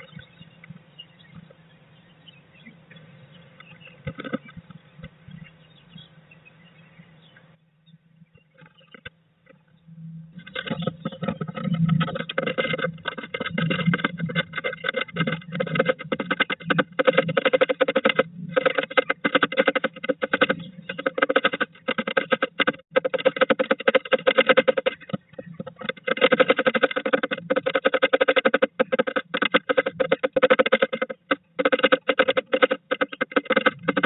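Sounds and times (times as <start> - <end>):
bird beak tapping wood: 10.4 - 34.0.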